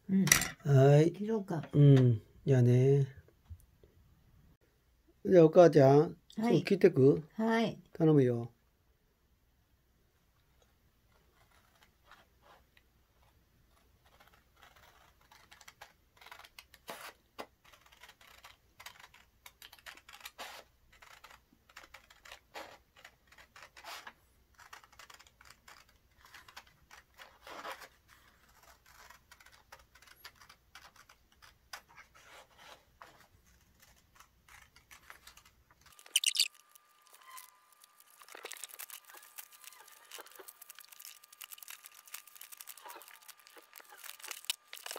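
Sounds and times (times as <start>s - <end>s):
scissors snipping paper: 13.2s - 32.4s, 33.0s - 44.9s
paper rustling: 26.1s - 44.9s.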